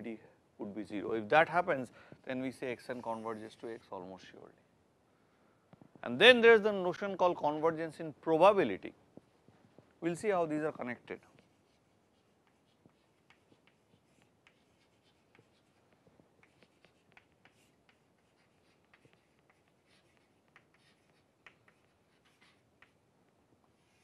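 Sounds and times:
chalk tapping and scratching: 0:11.0 - 0:24.0.

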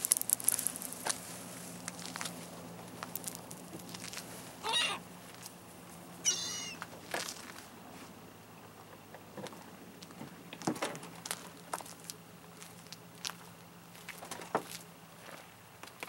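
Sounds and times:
gull calls: 0:04.6 - 0:05.0, 0:06.2 - 0:06.8.

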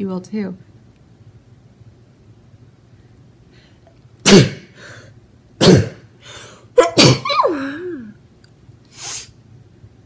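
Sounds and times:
woman sneezing: 0:04.2 - 0:04.8, 0:06.7 - 0:08.1, 0:09.0 - 0:09.4.

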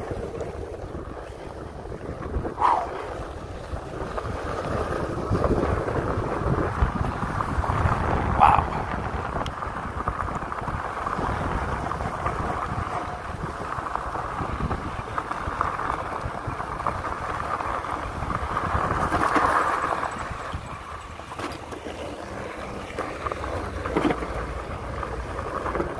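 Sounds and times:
tyre and frame noise: 0:00.0 - 0:00.6, 0:11.7 - 0:13.2, 0:18.8 - 0:25.9
wind rush on microphone: 0:00.0 - 0:21.3.

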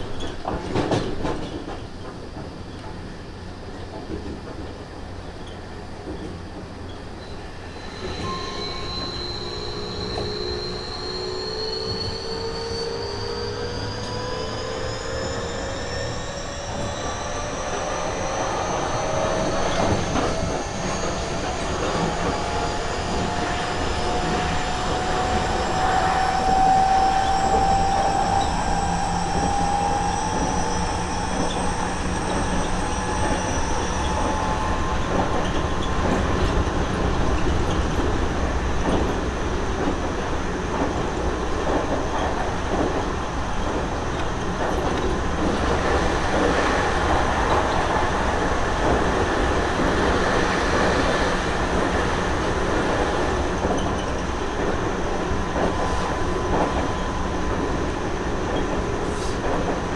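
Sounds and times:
train wheels rumbling on rails: 0:00.0 - 0:59.9
traction motor whine: 0:07.7 - 0:37.8.

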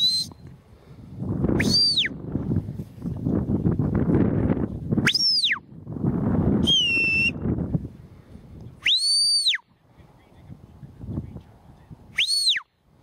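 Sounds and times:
person whistling commands: 0:00.0 - 0:00.4, 0:01.6 - 0:02.2, 0:06.6 - 0:07.4, 0:08.8 - 0:09.6, 0:12.2 - 0:12.7.

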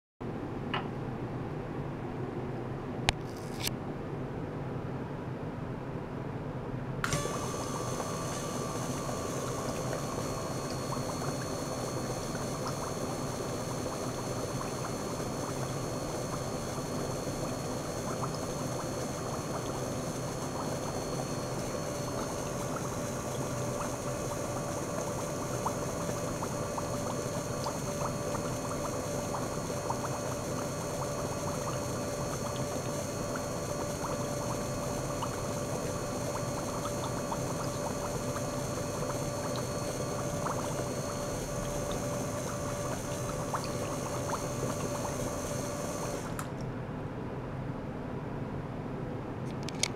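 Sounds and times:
pump whining tones: 0:07.0 - 0:46.5
pump bubbling water: 0:07.0 - 0:46.6.

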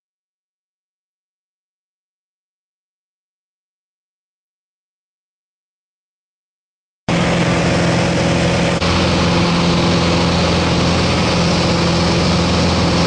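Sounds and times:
light aircraft engine droning: 0:07.1 - 0:13.0
rushing wind: 0:07.1 - 0:13.0.

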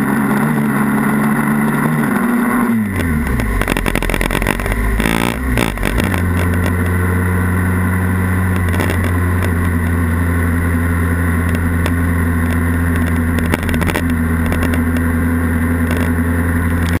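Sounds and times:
motorcycle engine running: 0:00.0 - 0:17.0
wind noise: 0:11.4 - 0:15.1.

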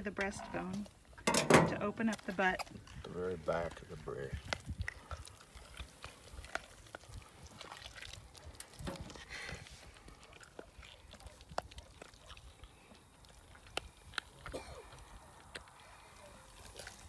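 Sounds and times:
wet clicks and squelches: 0:03.6 - 0:17.0.

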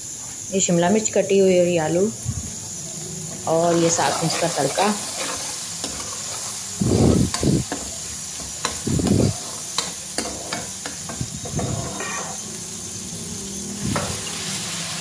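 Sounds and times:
onion and tomato sizzling: 0:00.0 - 0:15.0
spoon stirring and scraping pan: 0:03.3 - 0:12.6.

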